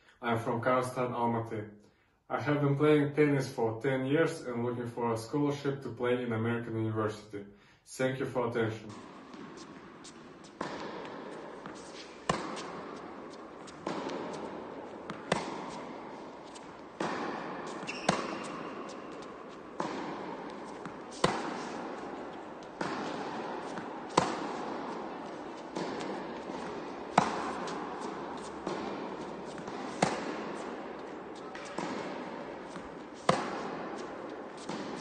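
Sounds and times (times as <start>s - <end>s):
tennis racket hitting ball: 8.9s - 35.0s.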